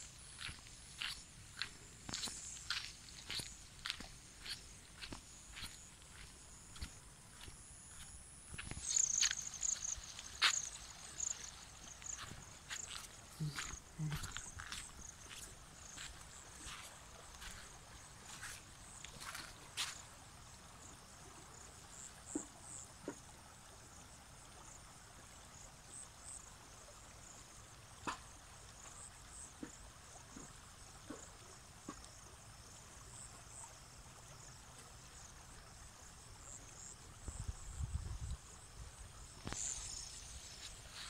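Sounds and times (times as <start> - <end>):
high-pitched insect chirping: 0.4 - 17.6, 39.4 - 41.0.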